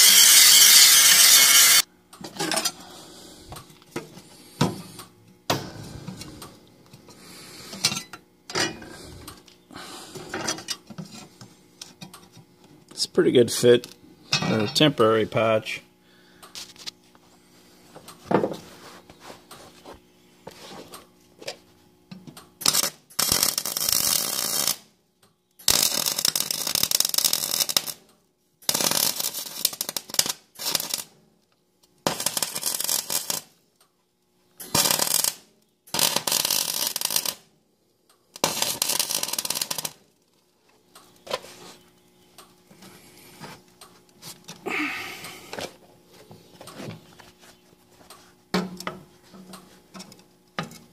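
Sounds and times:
electric arc welding: 0.0s - 1.9s, 22.6s - 24.9s, 25.6s - 28.0s, 28.6s - 31.2s, 32.0s - 33.6s, 34.6s - 37.5s, 38.3s - 40.1s.

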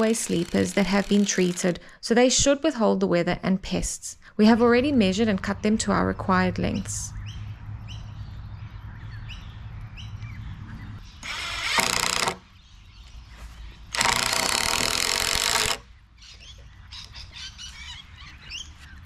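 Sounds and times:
impact driver driving screws: 0.0s - 1.8s, 11.2s - 12.4s, 13.9s - 15.8s
birds chirping faintly: 6.6s - 14.4s, 15.9s - 19.0s.

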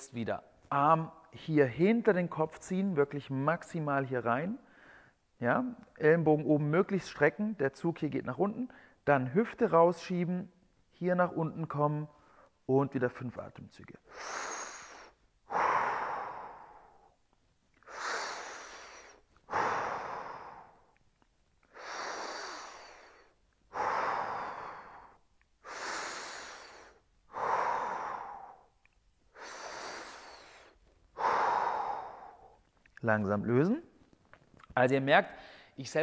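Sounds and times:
man breathing deeply: 14.0s - 17.2s, 17.8s - 21.0s, 21.6s - 32.7s, 35.4s - 35.8s.

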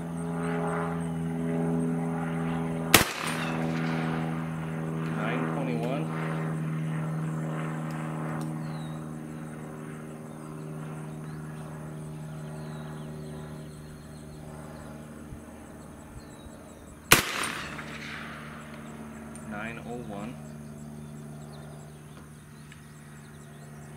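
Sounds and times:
background hum: 0.0s - 23.9s
rifle shot: 2.9s - 4.5s, 17.1s - 18.8s.

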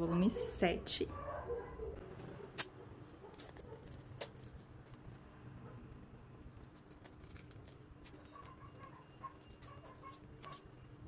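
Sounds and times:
plastic shrink-wrap crinkling: 6.6s - 10.8s.

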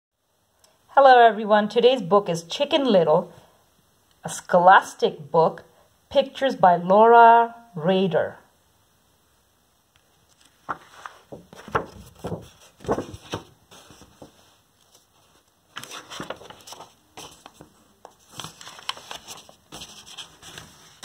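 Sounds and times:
book pages turning: 10.0s - 21.0s.

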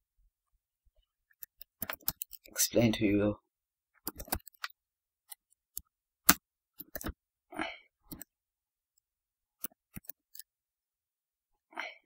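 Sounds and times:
keyboard and mouse clicks: 1.3s - 2.6s, 4.0s - 7.2s, 8.1s - 8.3s, 9.6s - 10.5s.

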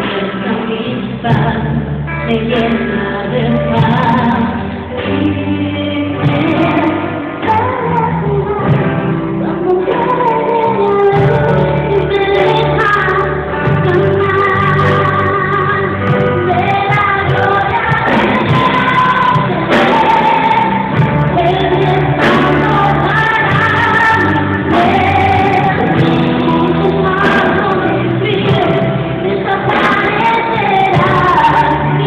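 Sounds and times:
live band with keyboards: 0.0s - 32.0s
group singing worship song: 16.5s - 32.0s.

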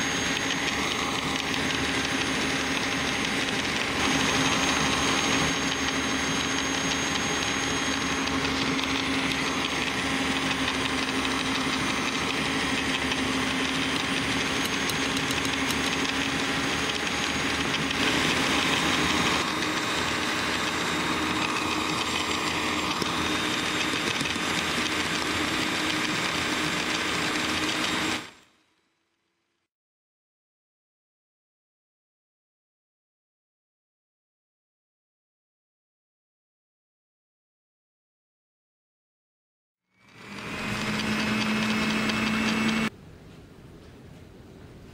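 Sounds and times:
electric mixer whisking batter: 0.0s - 28.5s, 40.0s - 42.9s.

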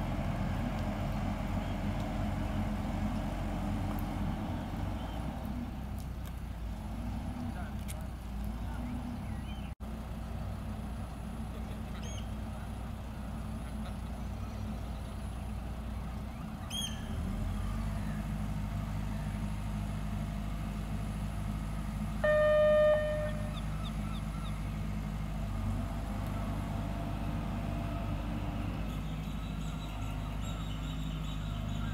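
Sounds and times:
tractor diesel engine running: 0.0s - 31.9s
faint bird chirps: 11.9s - 12.4s, 13.9s - 18.3s
horn sounding: 22.2s - 23.7s.

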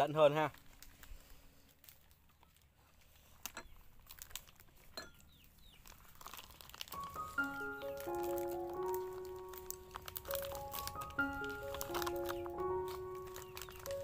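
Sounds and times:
rice paper crinkling: 0.0s - 14.0s
soft background music: 6.2s - 14.0s.

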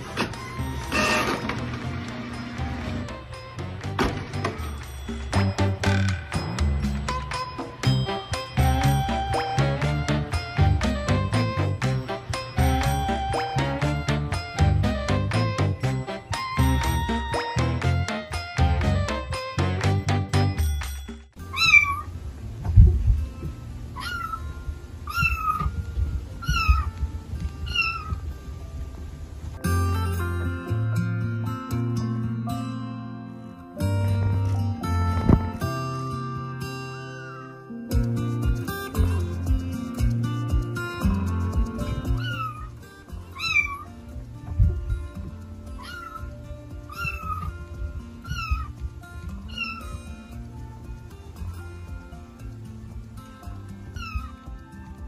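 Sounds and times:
cat meowing: 21.5s - 22.1s, 24.0s - 24.5s, 25.1s - 25.7s, 26.4s - 26.9s, 27.6s - 28.2s, 42.1s - 42.7s, 43.4s - 43.9s, 45.8s - 46.3s, 46.9s - 47.5s, 48.2s - 48.7s, 49.5s - 50.0s, 54.0s - 54.4s
kitten mewing: 24.0s - 24.4s, 42.2s - 42.7s, 43.4s - 43.9s, 45.8s - 46.3s, 46.9s - 47.5s.

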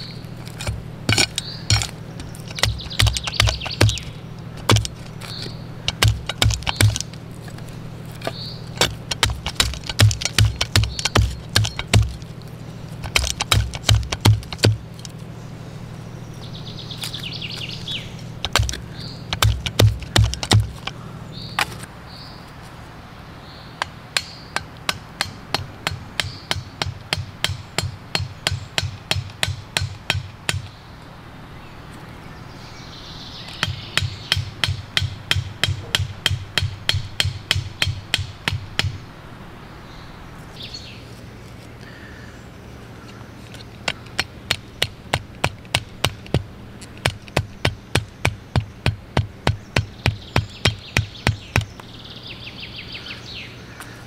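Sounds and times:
machete knocking wooden stakes: 0.4s - 12.4s, 13.0s - 15.2s, 18.4s - 21.0s, 21.6s - 21.9s, 23.8s - 30.8s, 33.5s - 39.0s, 43.5s - 51.9s.

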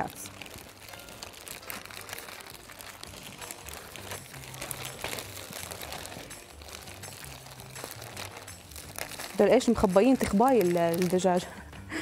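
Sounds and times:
plastic wrap and gloves crinkling: 0.0s - 11.7s.

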